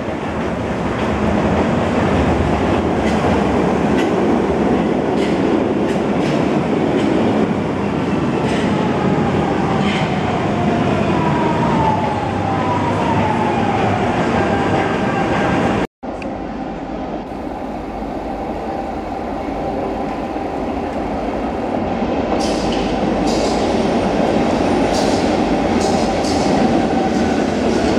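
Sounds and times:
rail clicks: 0.0s - 7.5s, 8.3s - 8.9s, 22.3s - 27.9s
train wheels rumbling: 0.0s - 12.2s, 12.8s - 27.9s.

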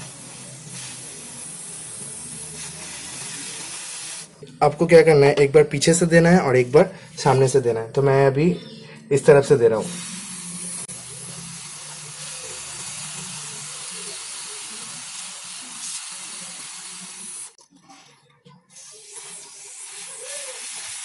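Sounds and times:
aerosol can spraying hiss: 0.0s - 4.3s, 9.8s - 17.6s, 18.8s - 21.0s.

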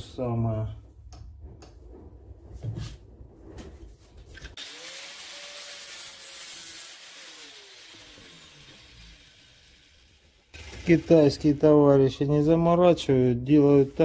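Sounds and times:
angle grinder cutting metal tube: 4.6s - 12.3s.

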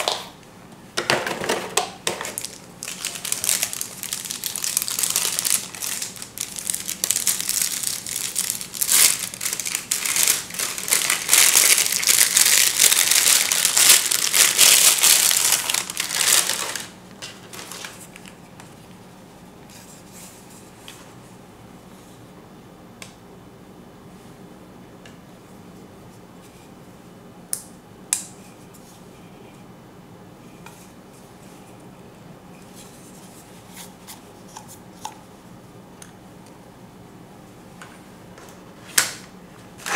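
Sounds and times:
plastic bag crinkling: 2.2s - 18.3s.

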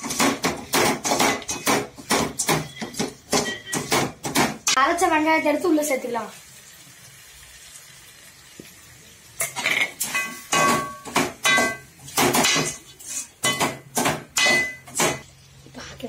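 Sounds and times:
metal ladle scraping a metal pot: 12.7s - 13.4s.

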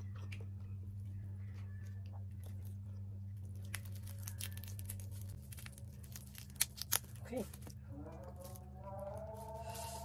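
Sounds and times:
steady low hum: 0.0s - 10.0s
crab shell cracking: 3.6s - 7.2s.

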